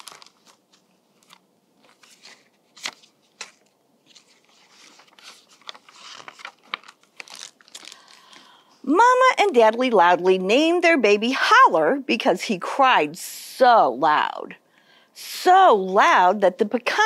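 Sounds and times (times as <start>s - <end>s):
book pages turning: 0.0s - 8.3s
paper rustling: 0.0s - 8.4s.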